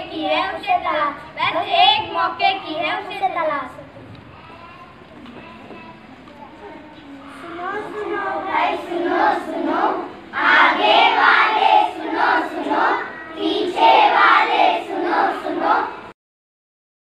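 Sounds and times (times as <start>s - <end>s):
children chanting in unison: 7.2s - 16.2s.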